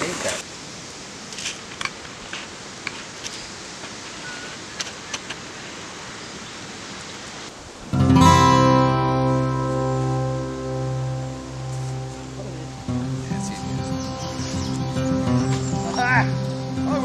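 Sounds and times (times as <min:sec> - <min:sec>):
acoustic guitar music: 0:07.8 - 0:17.0.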